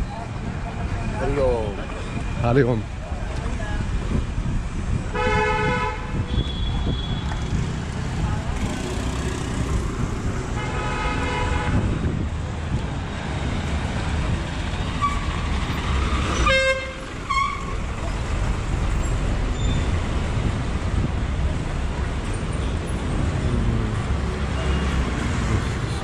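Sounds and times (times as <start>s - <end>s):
street noise: 0.0s - 26.0s
vehicle horns honking: 5.1s - 7.4s, 10.6s - 12.0s, 16.4s - 17.8s.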